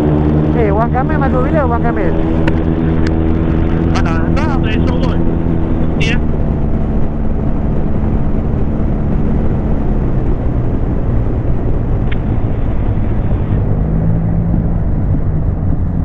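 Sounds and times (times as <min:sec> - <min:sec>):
motorcycle engine hum: 0:00.0 - 0:16.0
wind and road noise: 0:00.0 - 0:16.0.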